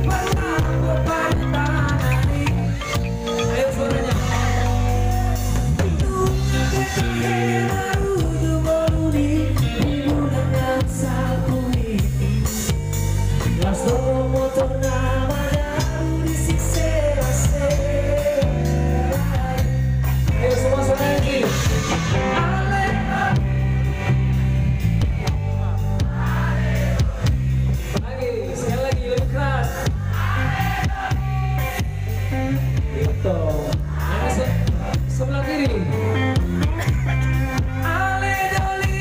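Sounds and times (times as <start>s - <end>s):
person singing: 0.0s - 5.0s, 5.7s - 12.8s, 13.4s - 19.8s
drum kit beat: 0.0s - 39.0s
live band playing: 0.0s - 39.0s.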